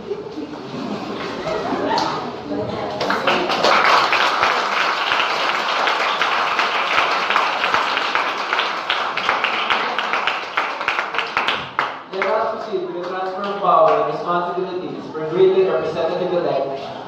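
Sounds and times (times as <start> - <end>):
audience applauding: 3.0 - 14.0.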